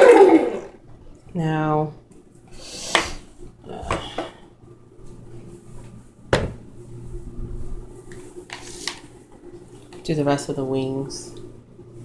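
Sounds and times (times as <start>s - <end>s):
faint steady hum: 0.0s - 12.0s
cabinet door knocking shut: 6.3s - 6.6s.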